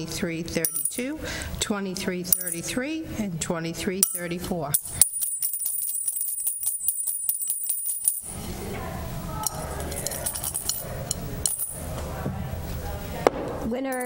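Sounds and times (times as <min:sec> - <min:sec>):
dog tags rattling in a bowl: 0:00.6 - 0:01.1, 0:04.0 - 0:08.3, 0:09.4 - 0:11.8.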